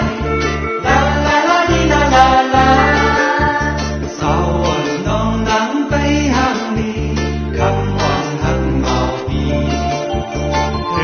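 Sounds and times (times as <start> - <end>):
men singing into microphones: 0.0 - 9.6
heavy pulsing bass: 0.0 - 11.0
live pop band with keyboard: 0.0 - 11.0.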